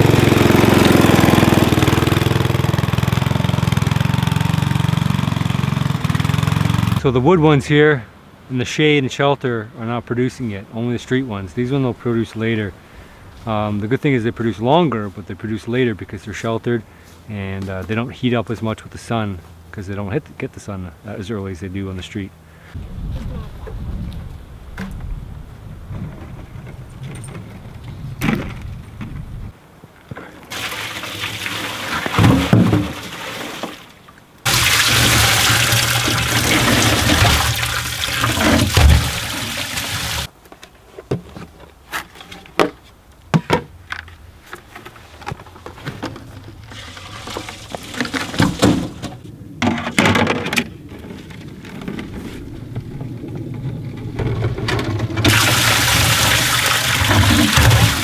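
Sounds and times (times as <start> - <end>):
liquid pouring onto ice: 34.5 - 40.3, 55.3 - 58.0.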